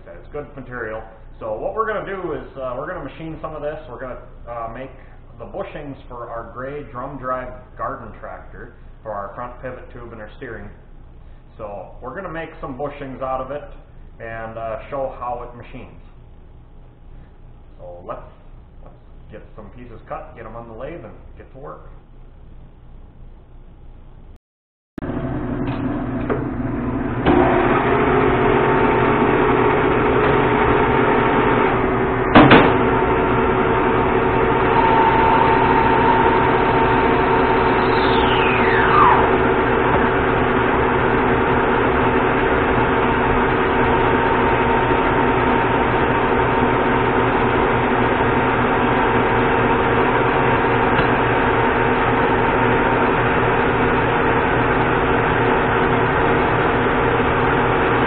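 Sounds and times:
lathe running: 25.0s - 58.0s
sharp knock: 32.3s - 32.9s
brief falling whistle: 34.7s - 39.5s.

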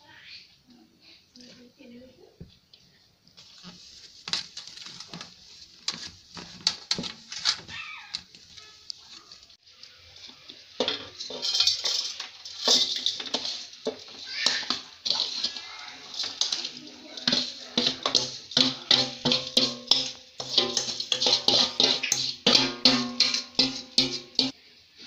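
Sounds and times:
metal utensils clinking on pot: 10.2s - 24.6s.

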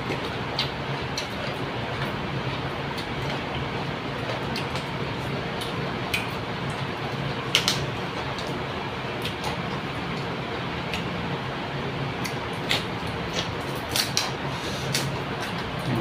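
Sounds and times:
vegetable snapping: 12.2s - 14.3s.

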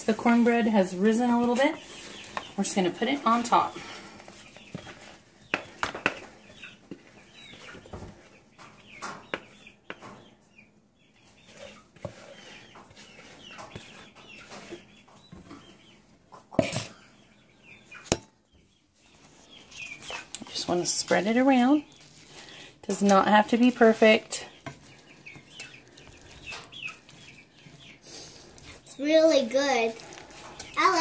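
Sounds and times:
chickens clucking: 0.1s - 29.0s, 29.8s - 31.0s
utensil knocking on skillet: 5.5s - 6.3s.

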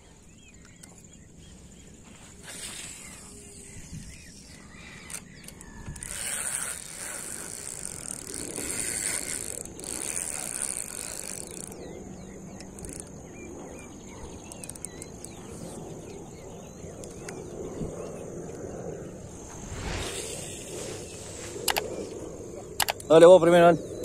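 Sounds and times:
fishing reel spool whirring: 2.4s - 17.8s, 19.2s - 23.7s
fishing reel clicking: 4.4s - 11.9s, 12.6s - 13.1s, 14.4s - 15.7s, 21.6s - 22.0s, 22.8s - 23.2s.

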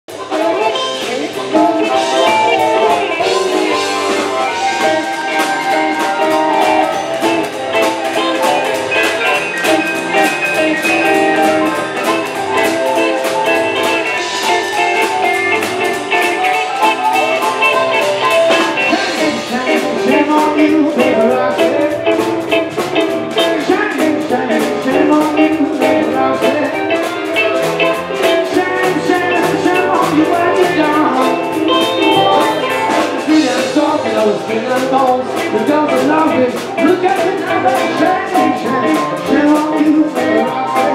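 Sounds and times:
drum kit: 0.1s - 40.9s
electric guitar: 0.1s - 40.9s
person singing: 0.1s - 40.9s
plucked double bass: 0.1s - 40.9s.

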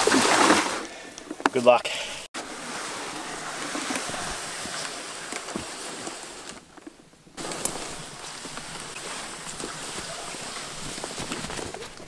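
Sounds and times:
plastic sled dragged: 0.0s - 12.0s
dry brush rustling and crackling: 2.4s - 12.0s.

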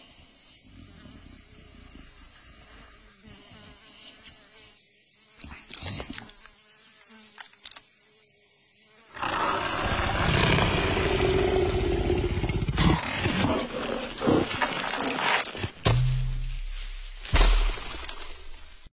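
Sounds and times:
faint insect buzz: 0.0s - 18.9s
cartoon leopard roaring: 9.1s - 15.4s
low thud: 15.8s - 18.8s.

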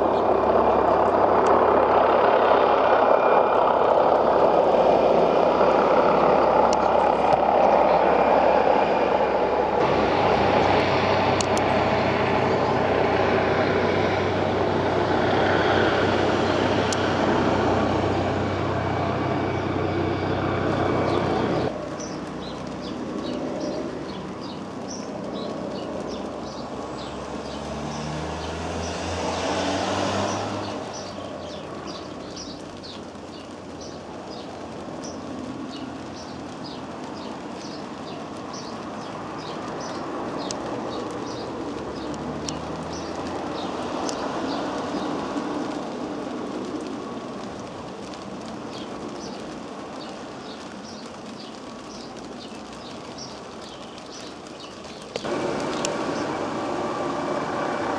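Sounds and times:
helicopter rotor rumble: 0.0s - 27.0s
small birds chirping: 10.1s - 45.9s, 46.7s - 57.6s.

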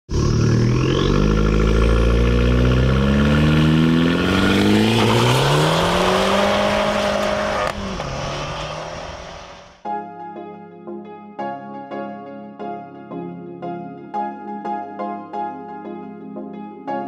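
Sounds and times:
car engine revving: 0.1s - 9.8s.

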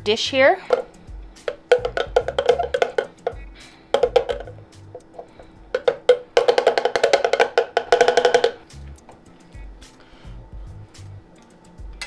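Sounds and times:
pitched percussive music: 0.6s - 9.1s.

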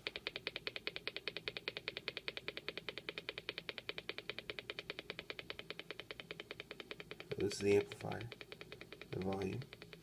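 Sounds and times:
speaker clicking: 0.0s - 10.0s.

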